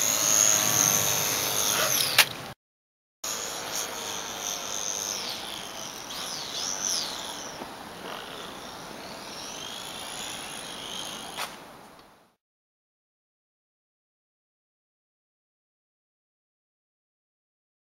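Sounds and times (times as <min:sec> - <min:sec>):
model plane motor whine: 0:00.0 - 0:02.3, 0:03.2 - 0:11.5
outdoor background noise: 0:00.0 - 0:02.6, 0:03.2 - 0:12.4.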